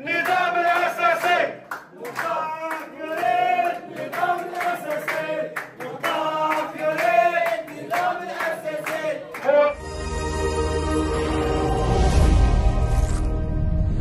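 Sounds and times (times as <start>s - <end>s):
crowd chanting: 0.0s - 9.8s
clapping: 0.2s - 9.5s
man speaking through megaphone: 9.4s - 9.8s.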